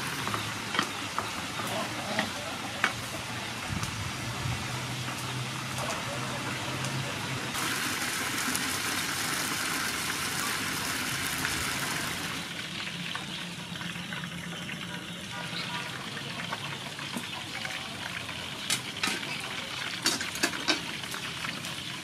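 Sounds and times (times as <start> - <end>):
oil sizzling in a frying pan: 0.0 - 22.0.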